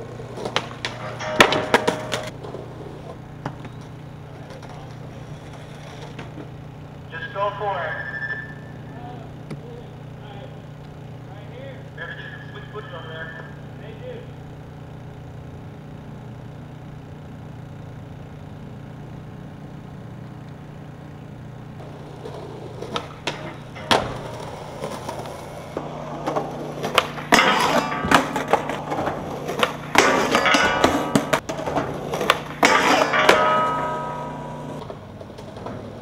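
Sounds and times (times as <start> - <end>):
skateboard grinding metal handrail: 0.0 - 6.6, 21.8 - 36.0
skateboard clacking: 0.0 - 7.1, 20.2 - 36.0
skateboard wheels rolling on concrete: 0.0 - 36.0
steady low hum: 0.0 - 36.0.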